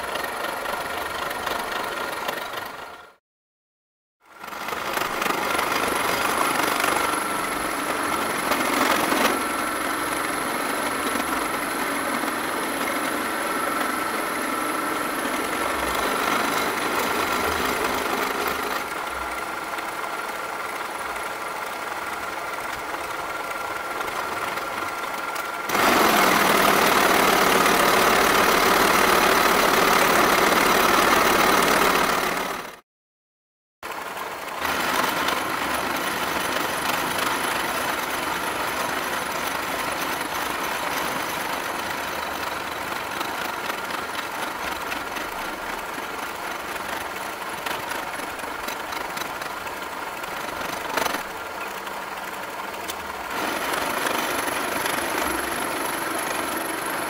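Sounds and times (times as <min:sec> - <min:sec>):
milling machine cutting metal: 0:25.3 - 0:32.4.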